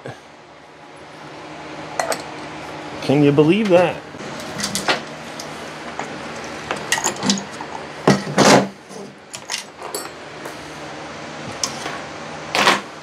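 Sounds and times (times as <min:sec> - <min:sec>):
metal tools clinking: 0:09.4 - 0:10.2.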